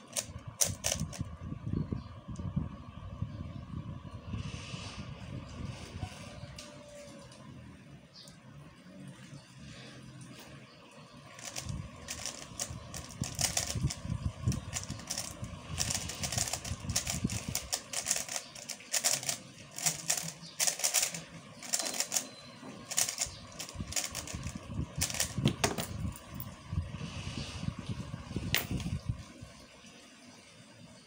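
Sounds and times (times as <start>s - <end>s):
plastic puzzle cube clicking turns: 0.0s - 1.2s, 11.4s - 22.3s, 22.9s - 25.6s.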